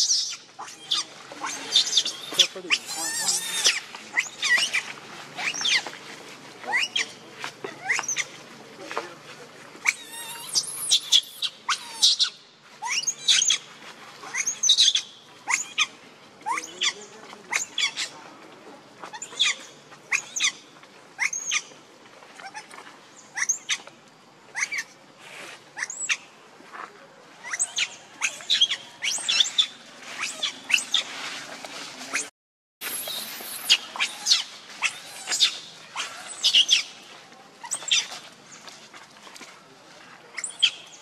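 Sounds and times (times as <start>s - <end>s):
infant monkey squealing: 0.0s - 5.8s, 6.7s - 7.1s, 9.8s - 13.6s, 14.3s - 18.1s, 19.1s - 20.5s, 21.2s - 21.6s, 23.4s - 23.8s, 24.5s - 24.9s, 25.8s - 26.2s, 27.4s - 31.1s, 32.9s - 36.9s, 37.6s - 38.1s.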